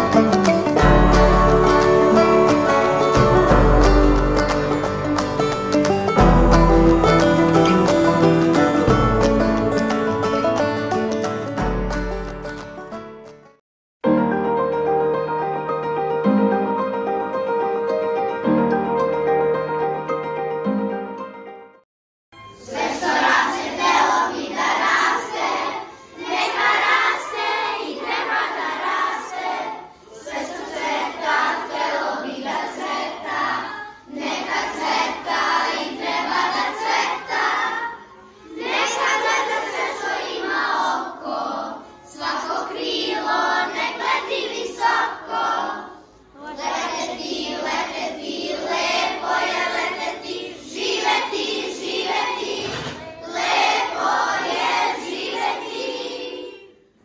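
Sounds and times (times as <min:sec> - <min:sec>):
children singing in chorus: 0:22.5 - 0:56.9.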